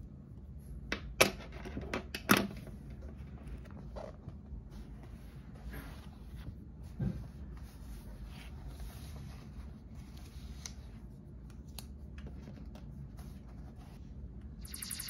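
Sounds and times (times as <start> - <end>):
low steady hum: 0.0 - 15.0
book pages turning: 3.2 - 14.0.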